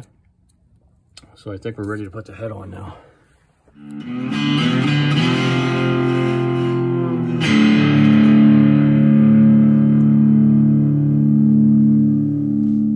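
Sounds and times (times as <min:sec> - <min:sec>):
guitar chords ringing: 0:03.8 - 0:12.9.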